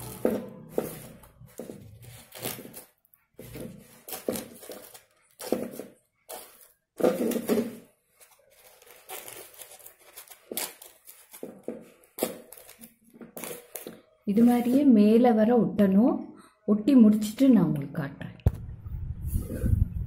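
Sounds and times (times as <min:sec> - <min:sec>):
husk tearing: 0:00.0 - 0:14.0
corn husks rustling and crinkling: 0:00.0 - 0:14.8.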